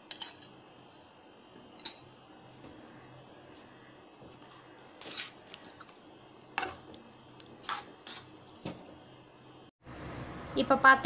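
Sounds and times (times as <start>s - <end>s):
metal spatula scraping pan: 7.6s - 8.3s.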